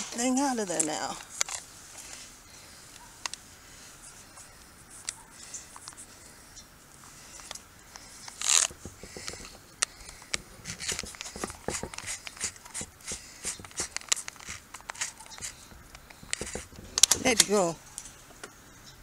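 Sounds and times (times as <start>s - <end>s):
wire scraping on steel bars: 8.2s - 18.1s.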